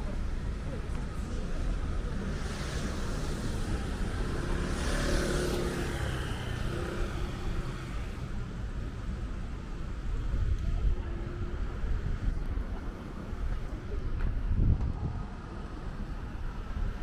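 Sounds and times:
traffic rumble: 0.0s - 17.0s
car passing: 2.0s - 8.3s.

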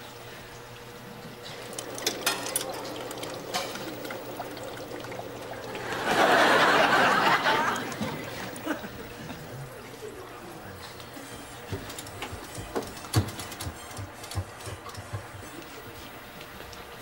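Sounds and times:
faint machine hum: 0.0s - 17.0s
liquid pouring: 1.4s - 9.2s.

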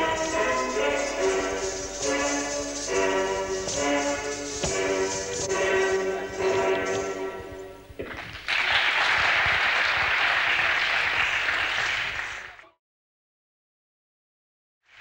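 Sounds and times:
accompaniment music: 0.0s - 8.0s
audience applauding: 8.0s - 12.7s.

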